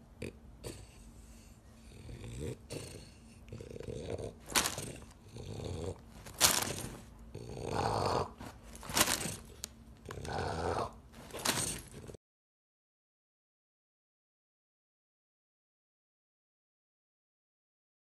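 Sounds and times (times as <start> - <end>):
dog noisy breathing: 0.6 - 12.2.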